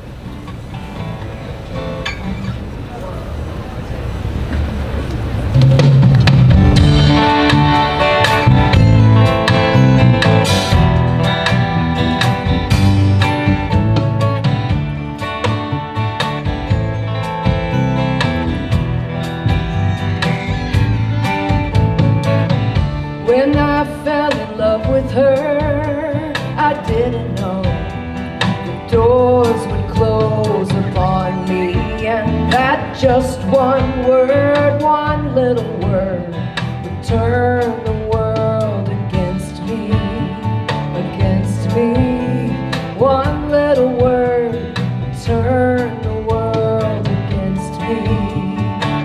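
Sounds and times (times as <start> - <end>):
acoustic guitars: 0.0 - 49.0
drum kit: 4.5 - 49.0
woman singing with vibrato: 23.2 - 49.0.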